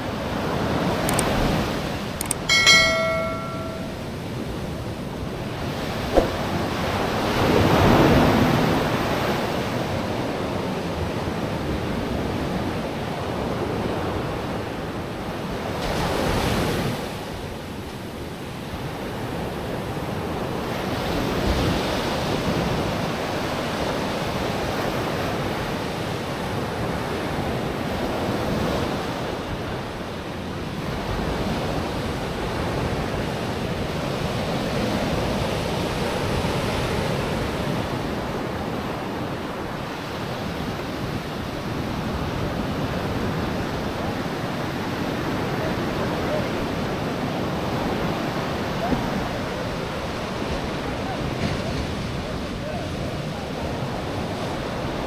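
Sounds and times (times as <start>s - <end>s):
sharp click: 1.1s - 1.4s, 2.2s - 4.0s
ocean surf breaking: 5.0s - 17.5s.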